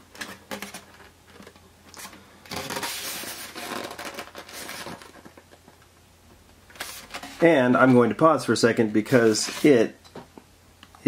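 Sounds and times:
styrofoam scraping and crunching: 2.5 - 5.4.

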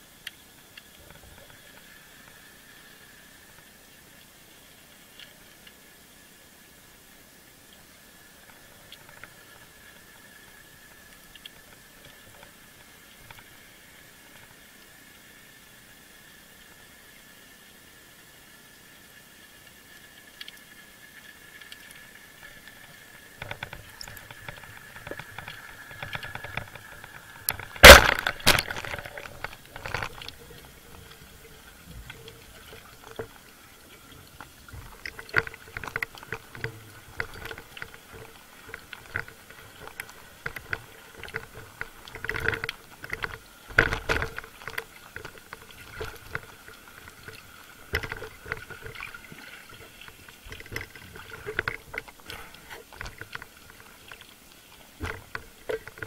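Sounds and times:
clicks and knocks of spear shaft: 23.4 - 30.4
speargun firing underwater: 27.6 - 29.2.

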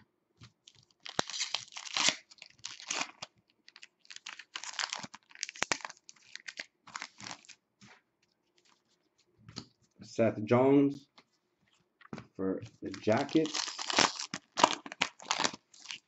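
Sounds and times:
foil wrapper tearing and crinkling: 0.6 - 7.6, 12.9 - 16.0.

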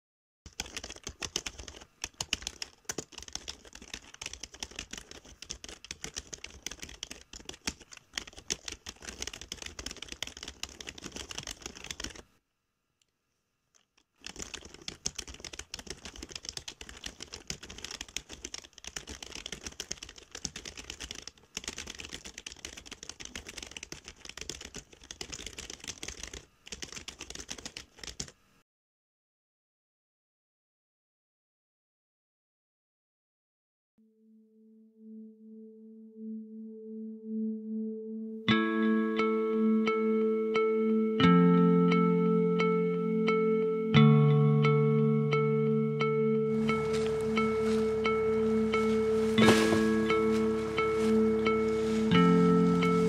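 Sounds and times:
rapid keyboard typing: 0.5 - 12.2, 13.8 - 28.4, 46.5 - 53.0.

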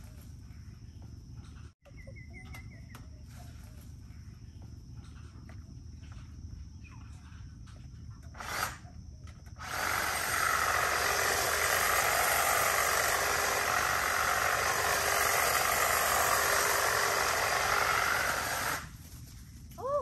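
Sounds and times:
hedge trimmer cutting foliage: 8.3 - 8.8, 9.5 - 19.0.

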